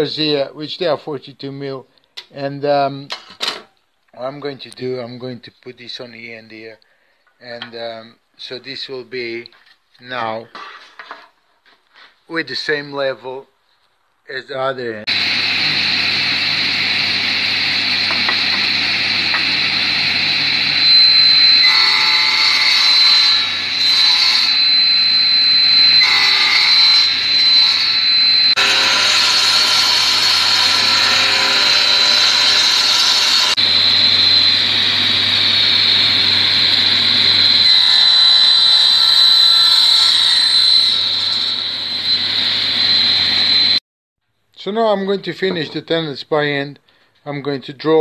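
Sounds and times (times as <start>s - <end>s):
saw blade cutting wood: 15.1s - 43.8s
table saw whining: 15.1s - 43.8s.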